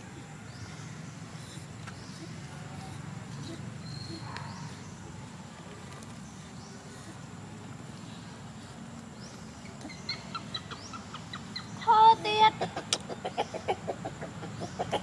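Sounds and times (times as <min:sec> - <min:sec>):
low outdoor background: 0:00.0 - 0:15.0
quick clucking calls: 0:12.4 - 0:15.0.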